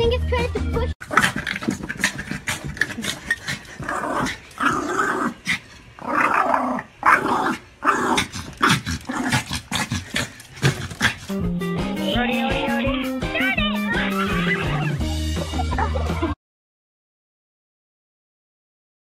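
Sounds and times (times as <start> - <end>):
small dog growling: 1.0 - 11.4.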